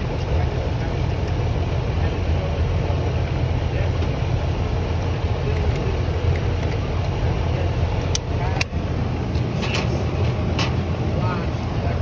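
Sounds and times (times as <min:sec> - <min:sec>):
air conditioner humming: 0:00.0 - 0:12.0.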